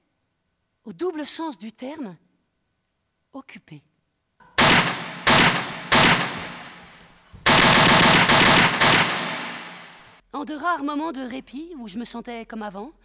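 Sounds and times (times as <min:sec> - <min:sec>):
loud ringing bangs: 0:04.6 - 0:10.2.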